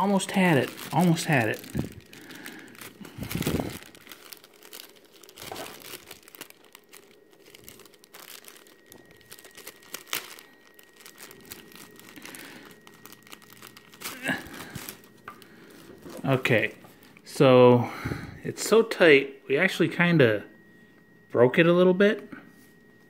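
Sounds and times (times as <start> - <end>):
plastic bag crinkling: 0.0 - 17.3.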